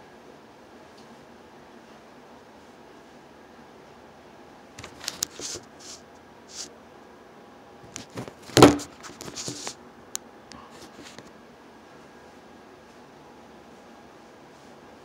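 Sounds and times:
phone handling rustles and taps: 8.0s - 9.8s.

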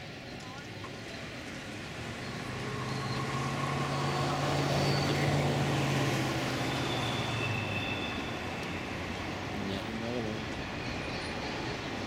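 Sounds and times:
passing vehicle hum: 1.5s - 10.8s
faint high-pitched squeals: 2.2s - 5.9s, 6.5s - 12.0s.

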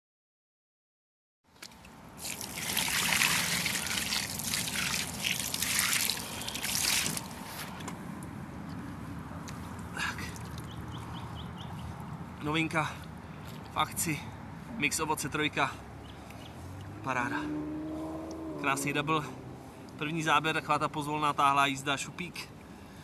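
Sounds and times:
water splashing and trickling: 1.5s - 7.9s, 9.6s - 13.8s.

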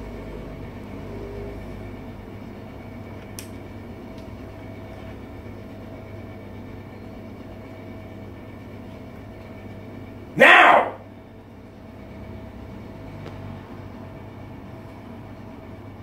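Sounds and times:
fan noise: 0.0s - 16.0s.

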